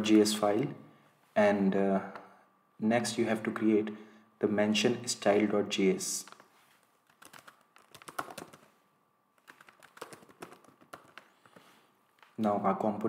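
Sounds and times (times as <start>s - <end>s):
faint keyboard typing: 6.2s - 8.8s, 9.4s - 13.0s.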